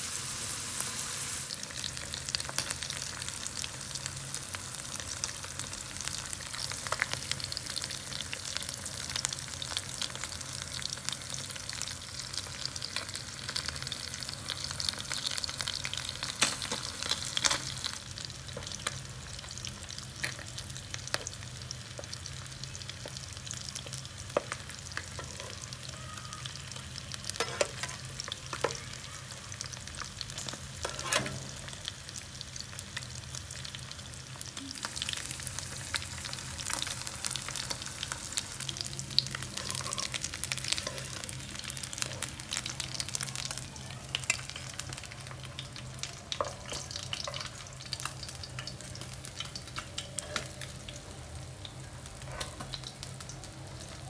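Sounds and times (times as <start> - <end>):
fish sizzling in oil: 0.0 - 54.0
metal spatula scraping pan: 27.4 - 28.0, 30.8 - 31.6.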